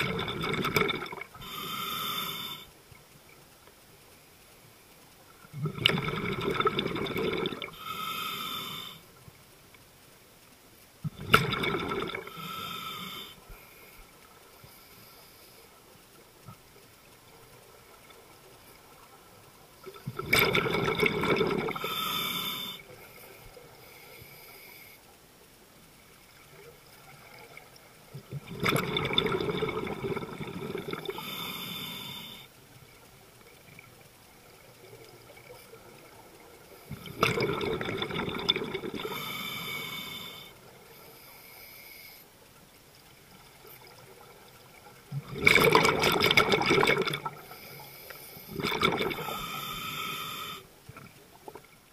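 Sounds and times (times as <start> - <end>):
rush of exhaled bubbles: 0.0 - 1.5, 5.5 - 7.8, 11.1 - 12.4, 19.8 - 22.0, 28.3 - 31.3, 36.9 - 39.3, 45.0 - 47.4, 48.5 - 49.6
regulator valve hiss: 1.3 - 2.8, 31.1 - 32.6, 39.0 - 42.3, 47.4 - 48.6, 49.2 - 50.7.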